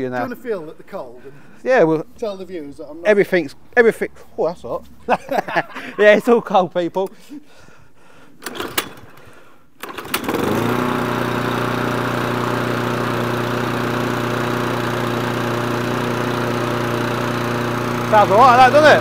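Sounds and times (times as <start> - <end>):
lawn mower engine running: 8.4 - 9.2, 9.8 - 19.0.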